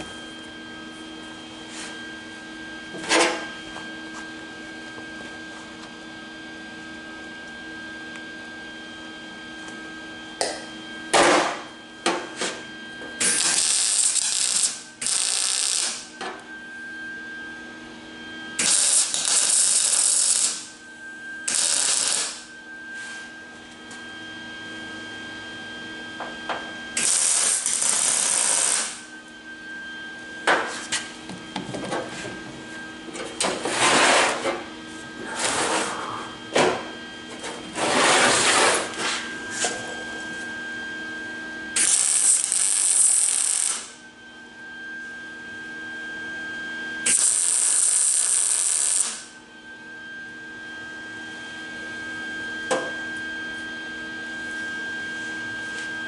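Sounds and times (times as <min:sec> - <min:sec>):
welding arc crackling: 0:13.2 - 0:16.1, 0:18.6 - 0:20.7, 0:21.5 - 0:22.4, 0:27.0 - 0:29.0, 0:41.8 - 0:43.9, 0:47.1 - 0:49.3.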